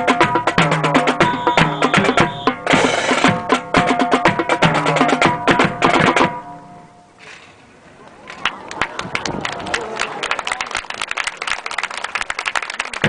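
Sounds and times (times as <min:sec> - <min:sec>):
rapid drum strokes: 0:00.0 - 0:06.4.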